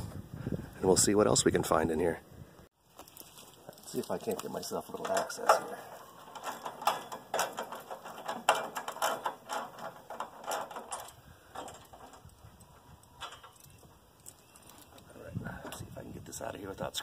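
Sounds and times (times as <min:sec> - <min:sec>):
metal parts clicking and clanking: 0:03.0 - 0:15.9.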